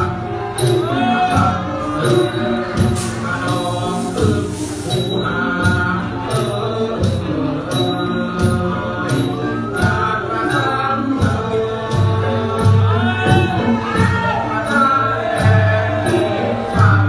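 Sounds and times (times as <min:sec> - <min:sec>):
sharp high percussion strike: 0:02.0 - 0:05.7.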